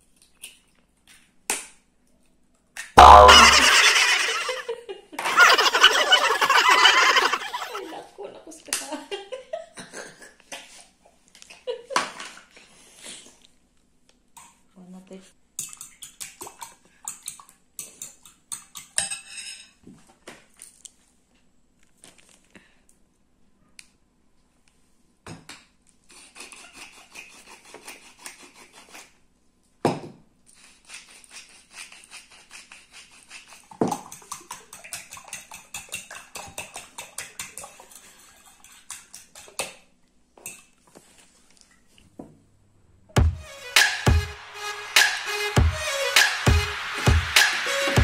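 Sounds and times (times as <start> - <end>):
whisk beating eggs in bowl: 31.4 - 39.7.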